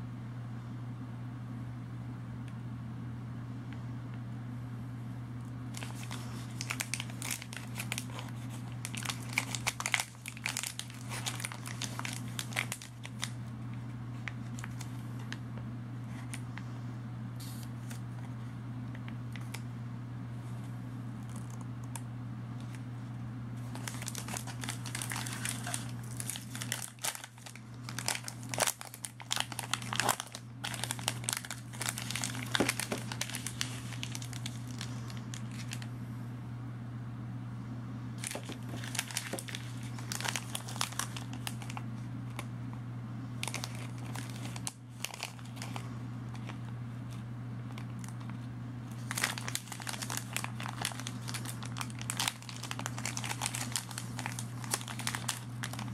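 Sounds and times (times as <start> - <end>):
foil wrapper crinkling and tearing: 5.7 - 15.4, 21.3 - 22.0, 23.6 - 35.9, 38.2 - 42.5, 43.4 - 55.9.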